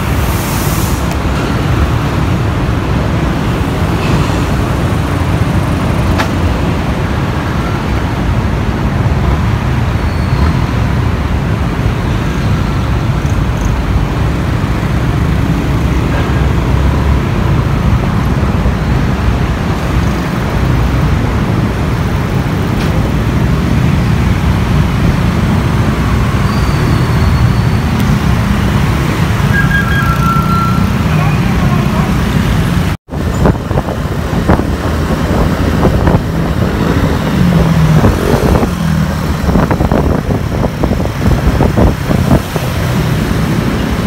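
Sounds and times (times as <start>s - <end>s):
wind buffeting microphone: 33.1s - 44.0s.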